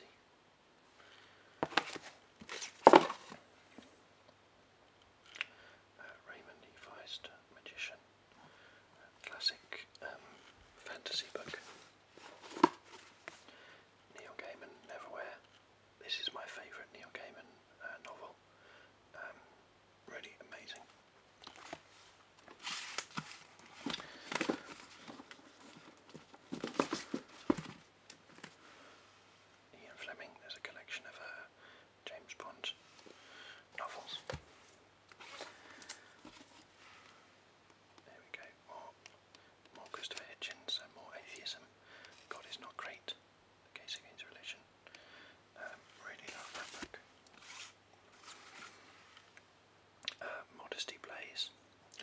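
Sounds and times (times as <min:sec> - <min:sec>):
books knocking and scraping: 0:01.6 - 0:03.4, 0:22.6 - 0:28.5.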